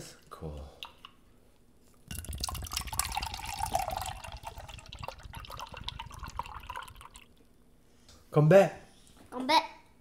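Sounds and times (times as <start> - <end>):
drink pouring into a mug: 2.1 - 7.5.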